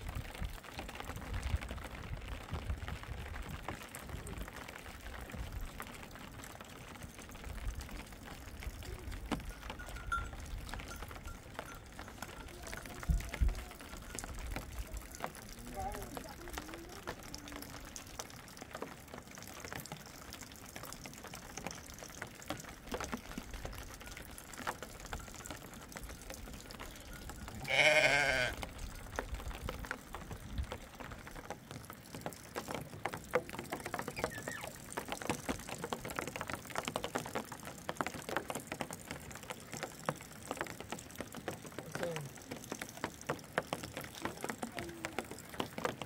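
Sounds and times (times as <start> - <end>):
sheep bleating: 27.5 - 28.6
small knocks and clicks: 28.6 - 46.0.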